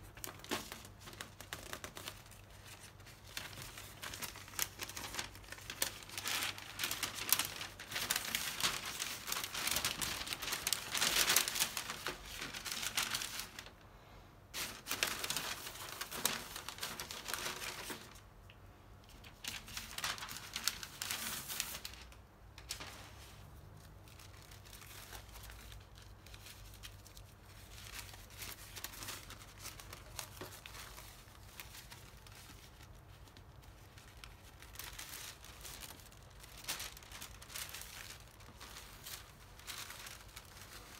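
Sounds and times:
paper crinkling and rustling: 0.0 - 13.8, 14.5 - 18.2, 19.0 - 40.9.

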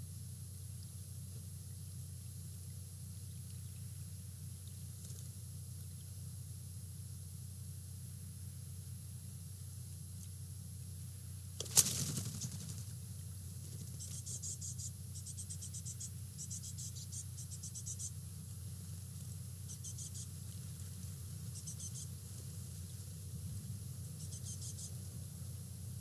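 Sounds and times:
steady low hum: 0.0 - 26.0
insects chirping: 13.7 - 25.2.

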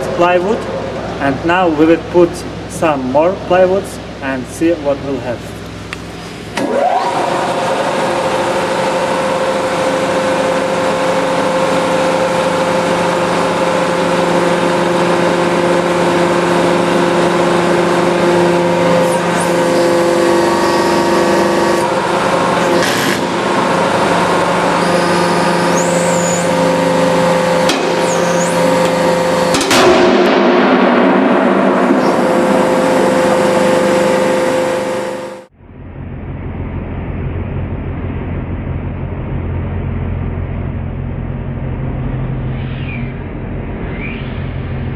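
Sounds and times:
hydraulic pump humming: 0.0 - 44.9.

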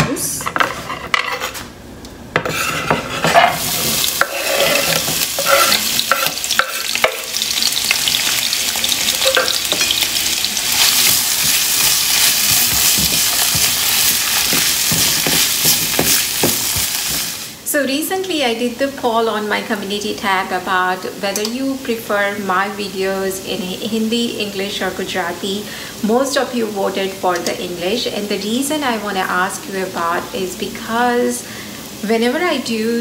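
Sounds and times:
spatula stirring: 2.4 - 17.3
vegetables sizzling in oil: 2.5 - 33.0.

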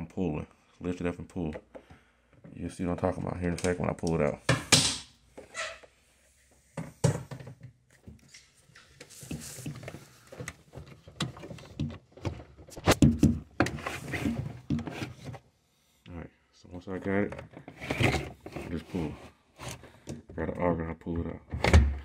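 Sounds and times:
hard plastic knocks and clunks: 10.3 - 13.8.

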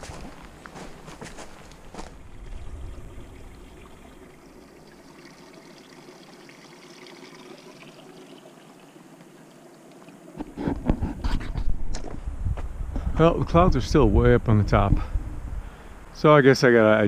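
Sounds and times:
creek trickling over rocks: 0.0 - 10.6.

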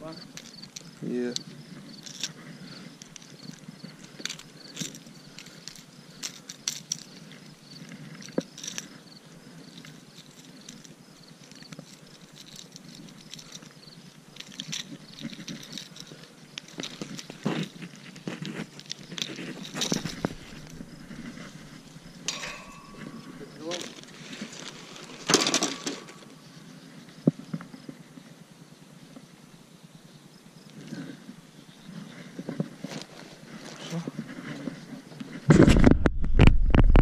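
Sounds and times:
insect chirping: 0.0 - 35.5
hands handling fish on metal grating: 9.7 - 26.3.

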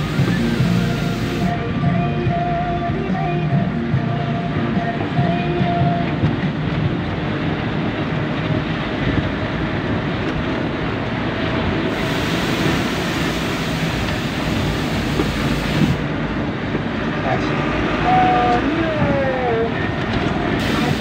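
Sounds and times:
bright hiss: 0.0 - 1.6, 11.9 - 16.0, 20.6 - 21.0
road rumble: 0.0 - 21.0
truck engine drone: 0.0 - 21.0.

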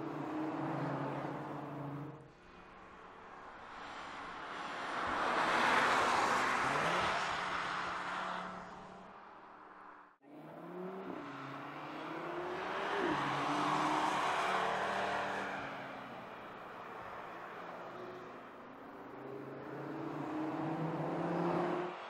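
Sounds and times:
car engine accelerating through gears: 10.3 - 15.7, 19.0 - 22.0
car engine passing at speed: 10.3 - 22.0.

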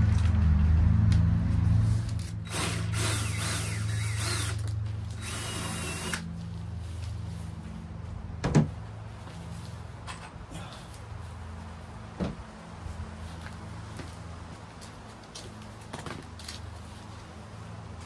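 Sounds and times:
drill driving screws into wood: 2.2 - 6.3.

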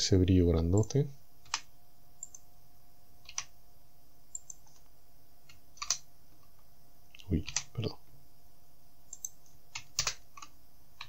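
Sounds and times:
faint steady hum: 0.0 - 11.0
keyboard and mouse clicks: 0.8 - 2.4, 3.2 - 3.5, 4.3 - 4.8, 5.5 - 6.0, 7.1 - 7.7, 9.1 - 11.0.

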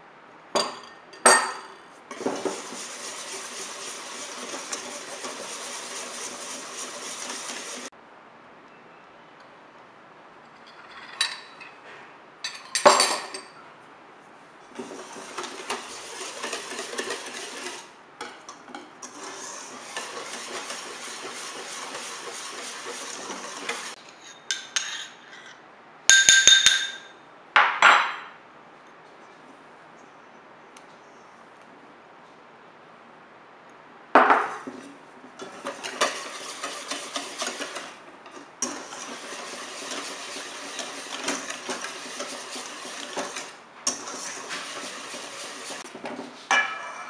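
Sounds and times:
whisk clinking against bowl: 2.1 - 7.9, 14.8 - 25.2, 35.4 - 38.0, 38.6 - 45.8
whisk scraping steel bowl: 2.1 - 7.9, 14.8 - 25.5, 34.6 - 46.0.

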